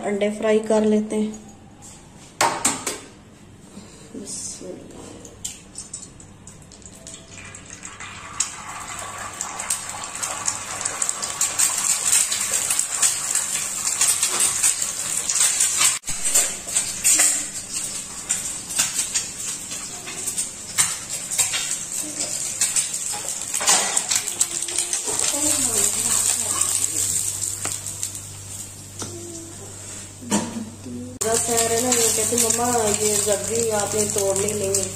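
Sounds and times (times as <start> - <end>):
egg sizzling in oil: 6.8 - 29.0, 31.2 - 34.9.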